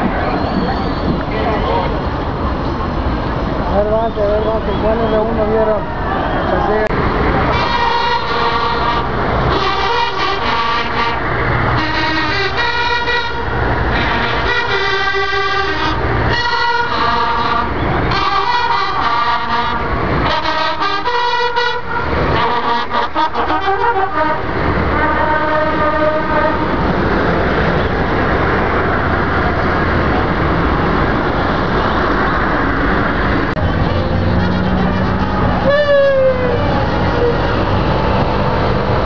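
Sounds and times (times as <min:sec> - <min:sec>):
vehicle engine and road noise: 0:00.0 - 0:39.0
horns honking: 0:03.8 - 0:27.0, 0:33.4 - 0:39.0.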